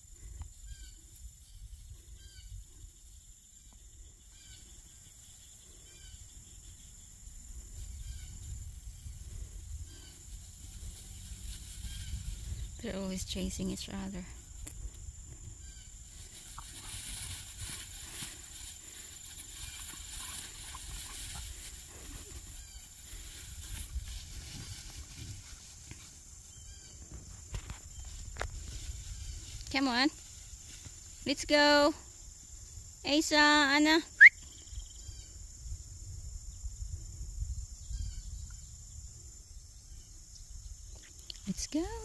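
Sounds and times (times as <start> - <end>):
tall grass rustling: 0.0 - 33.0
high insect drone: 0.0 - 42.0
low rumble of wind: 5.6 - 31.3, 34.5 - 41.4.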